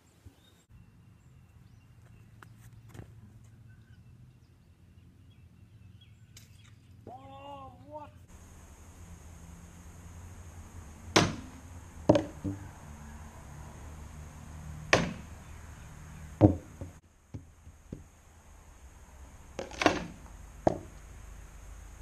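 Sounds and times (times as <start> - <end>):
frisbees striking backboard: 11.1 - 12.8, 14.9 - 15.4, 16.3 - 18.1, 19.6 - 21.0.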